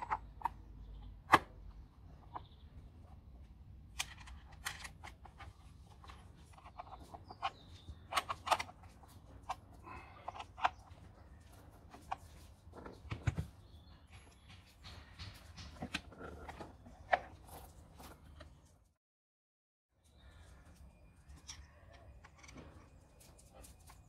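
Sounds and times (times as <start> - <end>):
plastic housing being handled: 4.0 - 9.6, 10.2 - 13.5.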